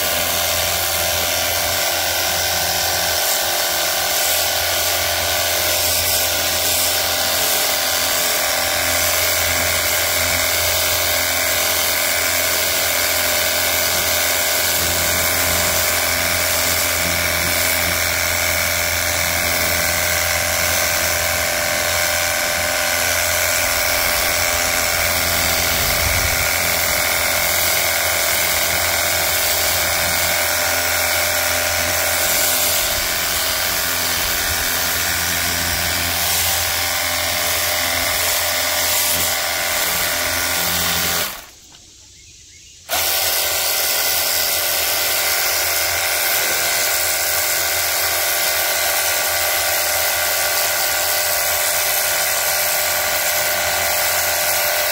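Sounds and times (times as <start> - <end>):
high spray hiss: 0.0 - 10.0, 20.6 - 42.3
pressure washer motor whine: 0.0 - 41.7, 42.9 - 54.9.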